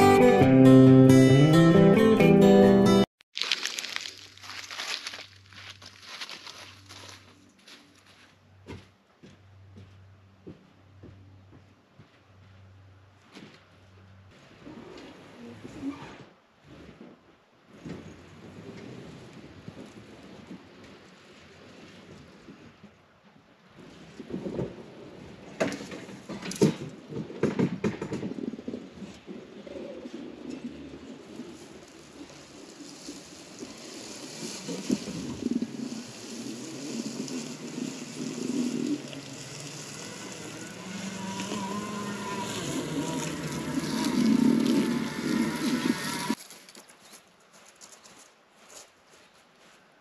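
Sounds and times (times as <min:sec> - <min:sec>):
knocks and clanks on ramps: 0:25.6 - 0:28.5
mower rolling down metal ramps: 0:30.4 - 0:46.4
electric motor whine: 0:34.7 - 0:46.4.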